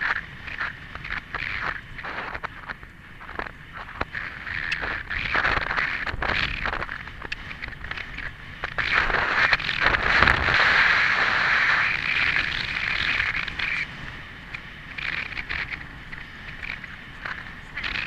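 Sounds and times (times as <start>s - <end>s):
wind rushing over microphone: 0.0s - 18.0s.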